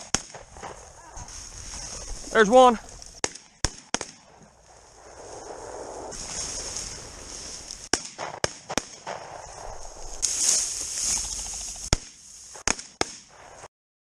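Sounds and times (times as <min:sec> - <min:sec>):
shotgun shots: 0:03.2 - 0:04.4, 0:07.9 - 0:09.6, 0:11.9 - 0:13.7.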